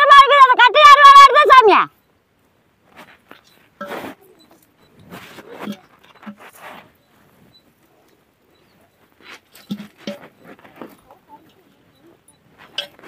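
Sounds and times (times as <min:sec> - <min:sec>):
sprouts knocking against clay pot: 0:09.3 - 0:11.0.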